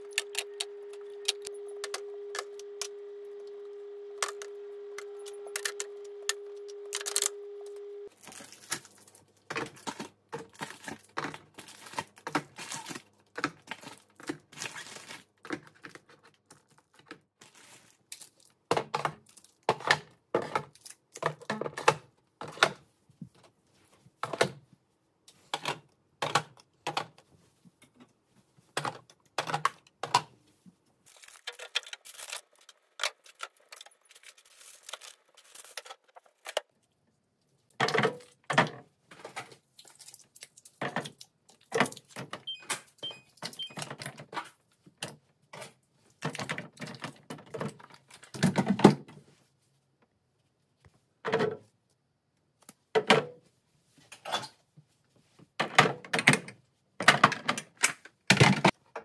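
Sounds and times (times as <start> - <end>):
faint low hum: 0.0 - 9.2.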